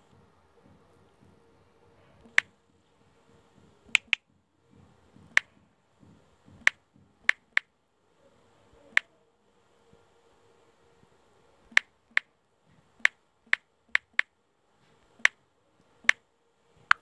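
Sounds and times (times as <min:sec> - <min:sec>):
phone keyboard clicks: 0:04.0 - 0:04.2, 0:13.0 - 0:14.3.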